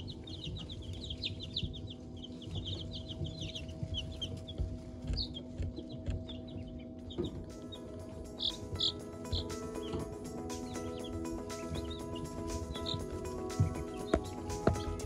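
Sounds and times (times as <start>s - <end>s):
chicks peeping: 0.0s - 15.0s
steady low hum: 0.0s - 15.0s.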